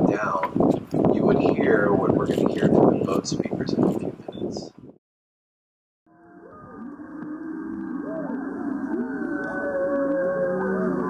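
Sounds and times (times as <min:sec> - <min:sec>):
whale song moans: 0:06.1 - 0:11.0.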